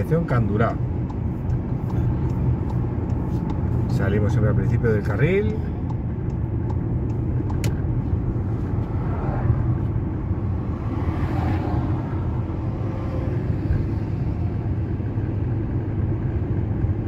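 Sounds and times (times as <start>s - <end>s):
car interior road rumble: 0.0s - 17.0s.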